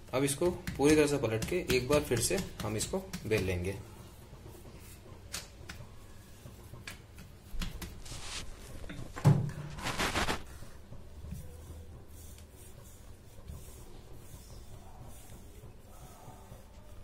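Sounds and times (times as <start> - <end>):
dough knocking on counter: 0.3 - 3.7.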